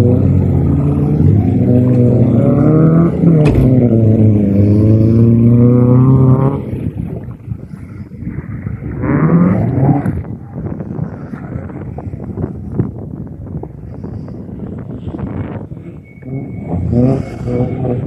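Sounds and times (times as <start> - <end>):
car engine revving hard: 0.0 - 6.8, 16.3 - 18.0.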